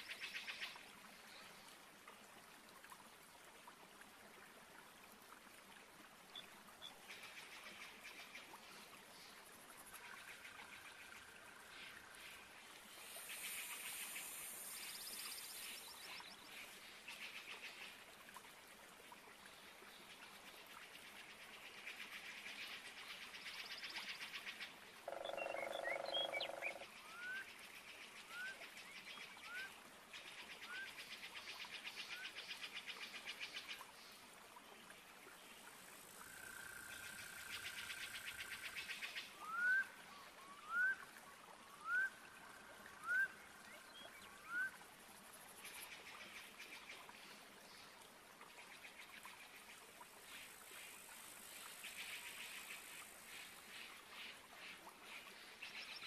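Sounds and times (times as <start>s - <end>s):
frogs trilling: 25.0s - 26.9s.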